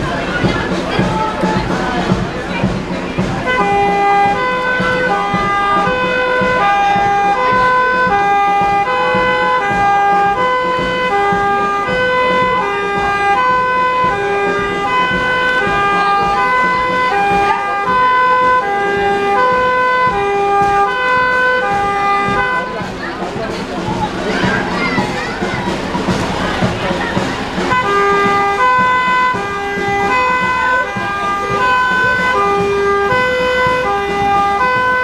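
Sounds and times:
two-tone siren: 3.5s - 22.9s, 27.7s - 35.0s.

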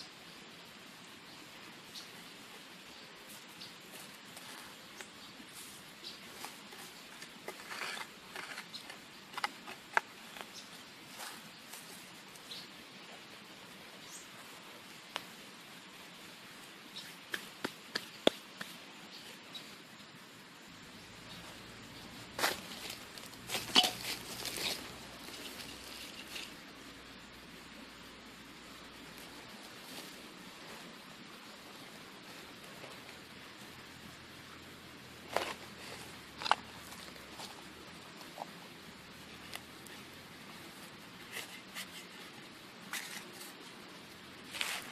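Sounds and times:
metal trowel scraping soil: 4.0s - 11.5s, 22.4s - 26.6s, 41.2s - 43.6s.

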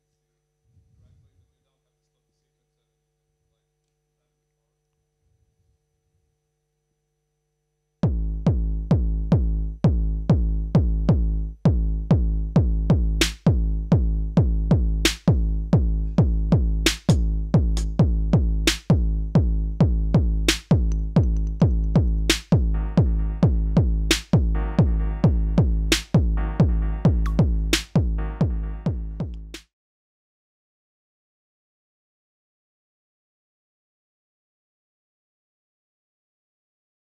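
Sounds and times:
deep pitched synth drum hits: 17.6s - 29.6s.

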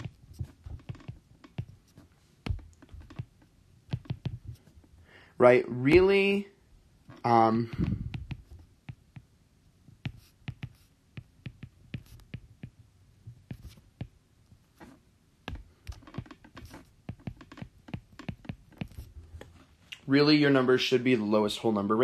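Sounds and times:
stylus tapping on tablet: 0.0s - 4.7s, 7.7s - 9.3s, 10.0s - 14.2s, 15.5s - 19.1s.

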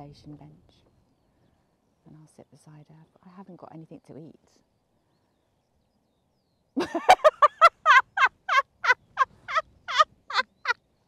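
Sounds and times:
gull calling: 6.8s - 10.8s.

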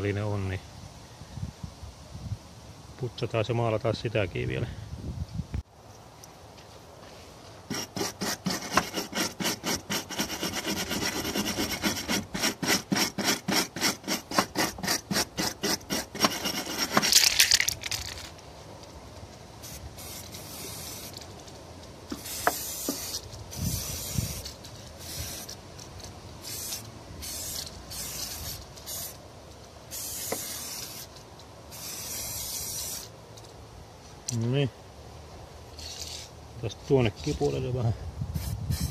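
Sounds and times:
aerosol paint can spraying: 7.7s - 18.0s, 19.6s - 21.2s, 22.1s - 25.6s, 26.4s - 29.2s, 29.9s - 33.1s, 38.4s - 38.9s
wire brush scrubbing metal: 7.7s - 18.0s, 22.1s - 29.2s.

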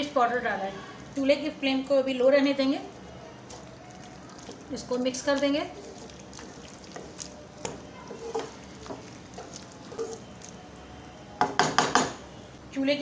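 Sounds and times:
spatula stirring thick curry: 2.9s - 11.5s.

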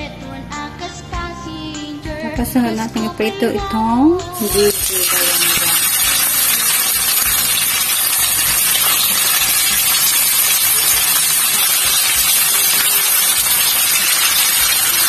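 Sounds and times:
oil sizzling in a frying pan: 4.3s - 15.0s.

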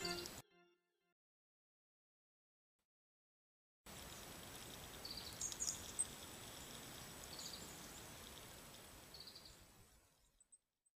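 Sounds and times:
water trickling from a pipe: 3.9s - 9.3s
small birds calling: 4.1s - 10.6s.

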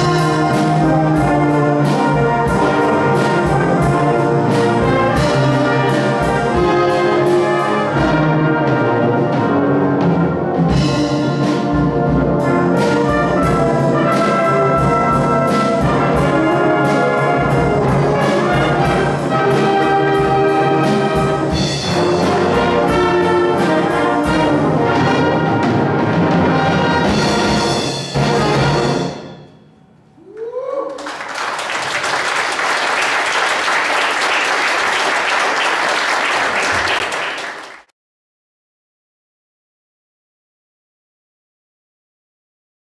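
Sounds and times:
drums beating: 0.0s - 29.4s
brass band playing: 0.0s - 29.7s.

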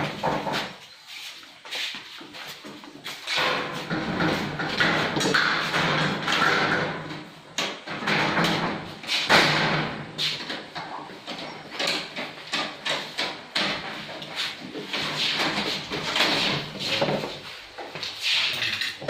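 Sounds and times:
metal shelves clattering: 3.2s - 17.6s.

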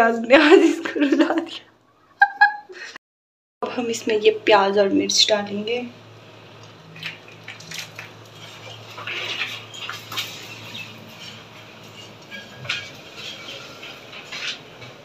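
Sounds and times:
steel plates clinking and scraping: 8.4s - 15.0s.

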